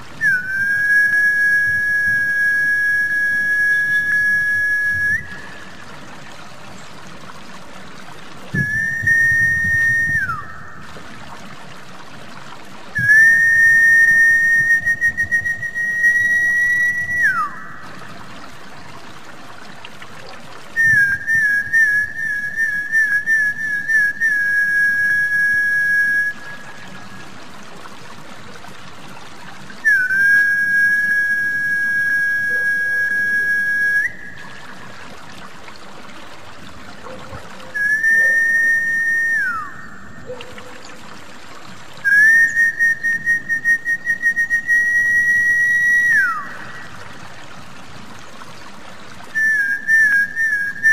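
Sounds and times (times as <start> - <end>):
trickling water: 0.0 - 50.9
long high whistle notes: 0.2 - 5.7, 8.6 - 10.8, 13.0 - 17.8, 29.8 - 34.6, 37.7 - 40.0, 42.0 - 46.9.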